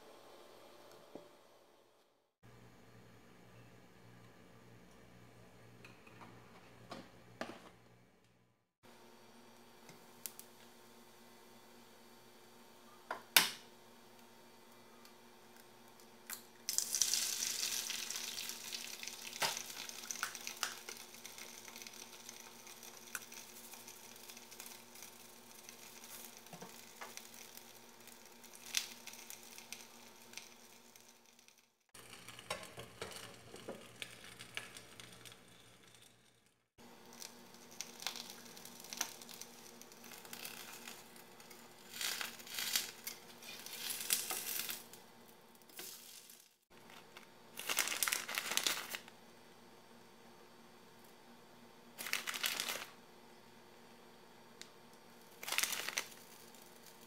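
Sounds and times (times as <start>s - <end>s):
egg and bread sizzling in pan: 15.5s - 49.1s, 51.9s - 53.0s, 54.8s - 57.0s.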